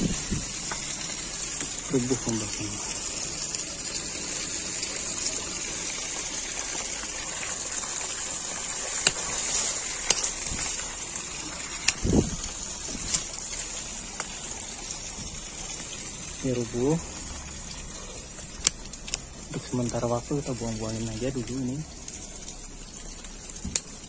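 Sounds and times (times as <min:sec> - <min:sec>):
steady high hiss: 0:00.0 - 0:24.0
twigs snapping: 0:09.0 - 0:10.8.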